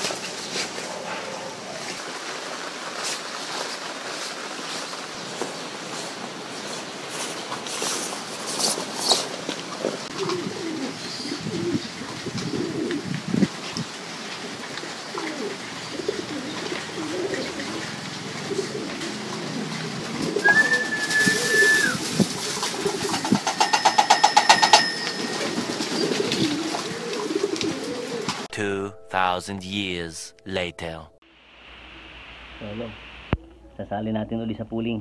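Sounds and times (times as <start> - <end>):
pigeons cooing: 10.0 - 23.8, 24.8 - 28.5
high whistle-like tone: 20.4 - 22.0.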